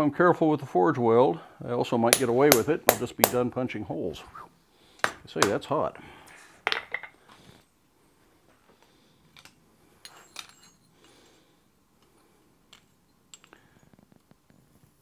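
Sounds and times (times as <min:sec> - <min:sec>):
metal tools clinking on anvil: 0:10.0 - 0:11.2, 0:12.7 - 0:13.9.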